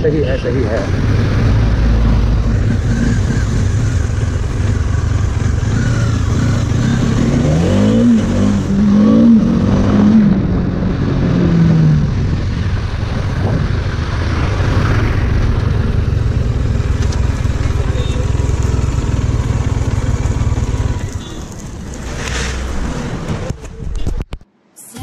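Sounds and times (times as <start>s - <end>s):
motorcycle engine revving: 0.4s - 23.5s.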